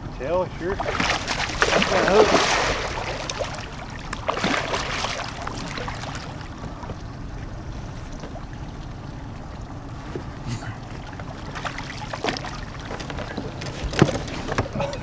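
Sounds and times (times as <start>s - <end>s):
low wind rumble: 0.0s - 15.0s
water splashing against boat: 0.5s - 15.0s.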